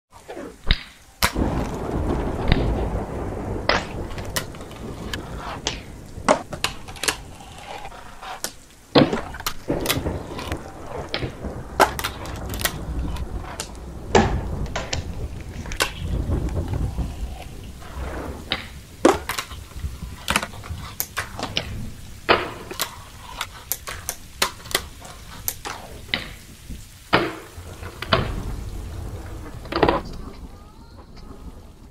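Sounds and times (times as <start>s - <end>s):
fingerboard wheels rumbling: 0.2s - 31.9s
fingerboard deck clacking: 17.0s - 26.4s, 27.1s - 28.4s.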